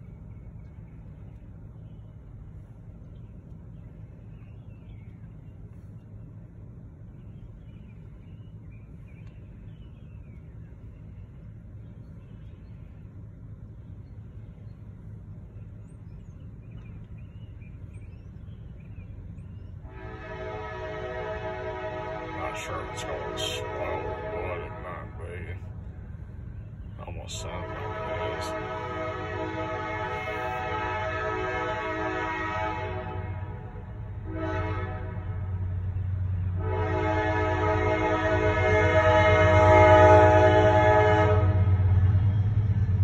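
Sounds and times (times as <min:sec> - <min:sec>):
low rumble inside car: 0:00.0 - 0:19.9, 0:22.4 - 0:29.2
locomotive air horn blasts: 0:19.8 - 0:25.2, 0:27.4 - 0:35.6, 0:36.6 - 0:42.0.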